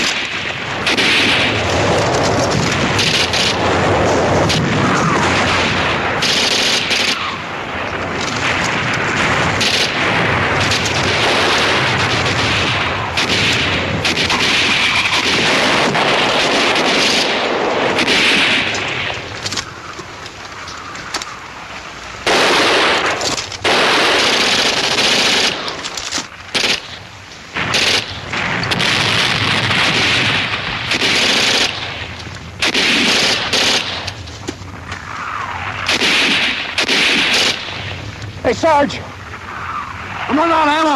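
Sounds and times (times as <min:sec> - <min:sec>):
machine-gun bursts: 0:03.0 - 0:03.6, 0:05.2 - 0:07.4, 0:09.6 - 0:18.7, 0:22.3 - 0:27.0, 0:27.6 - 0:28.1, 0:28.7 - 0:31.9, 0:32.6 - 0:34.1, 0:35.9 - 0:37.6.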